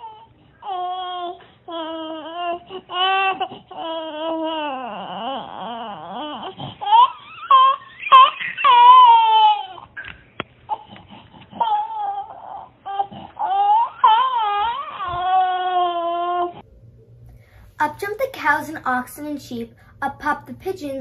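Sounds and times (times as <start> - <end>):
infant crying: 0.0 - 10.1, 10.7 - 16.6.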